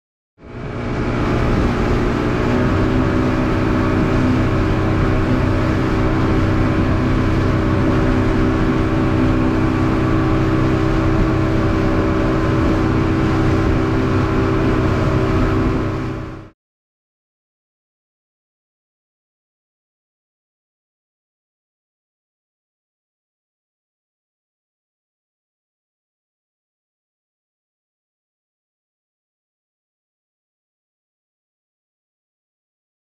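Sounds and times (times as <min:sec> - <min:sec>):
outboard motor running: 0:00.4 - 0:16.6
wind: 0:00.4 - 0:16.6
water rushing: 0:00.5 - 0:16.5.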